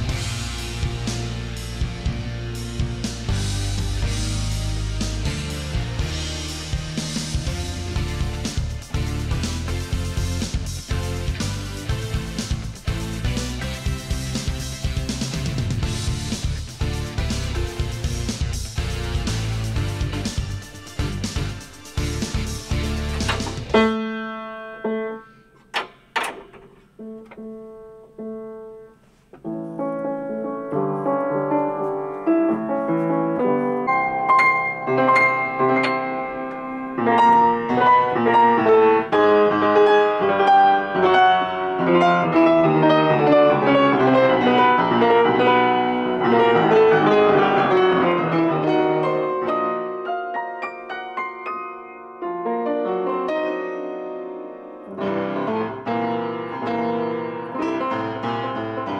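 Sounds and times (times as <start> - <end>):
flowing piano passages: 2.5 - 58.9
piano note struck: 22.3 - 27.7, 33.4 - 50.0.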